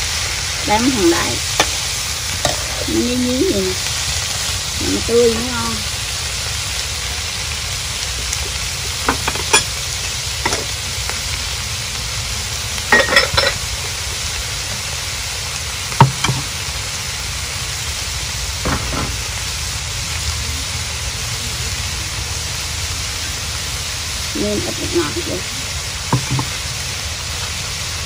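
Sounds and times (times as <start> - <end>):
shrimp sizzling in a wok: 0.0 - 28.0
metal ladle clinking on wok: 9.1 - 9.7, 12.9 - 13.6.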